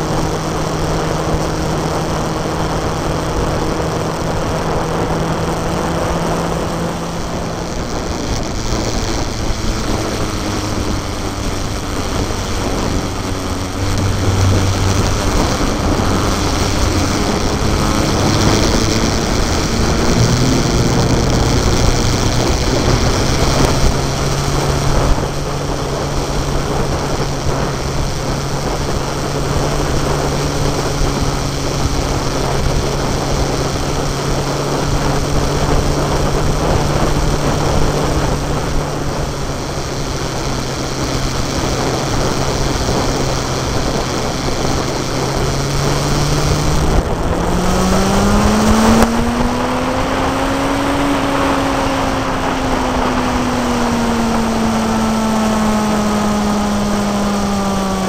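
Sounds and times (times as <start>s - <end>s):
vehicle engine running: 0.0s - 58.0s
wind and road noise: 0.0s - 58.0s.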